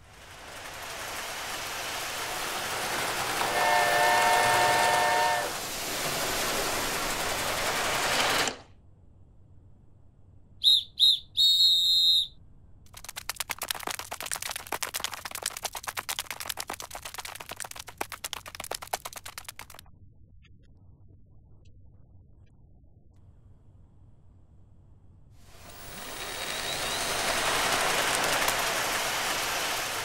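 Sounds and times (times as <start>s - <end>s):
toy train running on track: 0.0s - 8.7s, 25.5s - 30.0s
toy train whistle: 3.3s - 5.6s.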